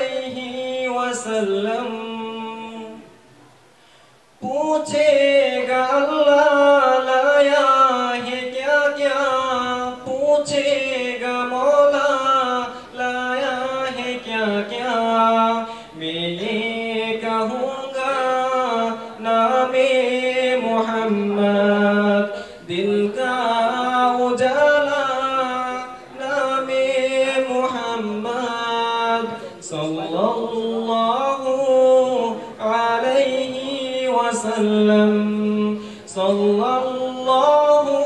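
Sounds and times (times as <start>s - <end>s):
man singing unaccompanied: 0.0s - 3.2s, 4.3s - 38.0s
singer breathing: 3.7s - 4.3s, 12.7s - 12.9s, 15.7s - 16.0s, 22.3s - 22.7s, 35.8s - 36.1s.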